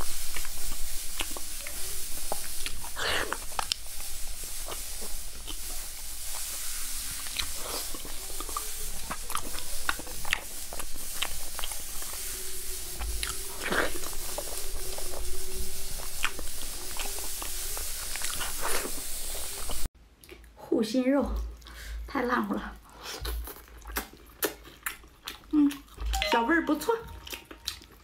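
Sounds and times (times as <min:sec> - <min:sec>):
person chewing and smacking: 0:00.0 - 0:05.7, 0:07.2 - 0:12.2, 0:13.0 - 0:15.3, 0:16.0 - 0:19.0, 0:19.6 - 0:20.6, 0:22.8 - 0:26.2, 0:27.1 - 0:28.0
steady hiss: 0:00.0 - 0:19.9.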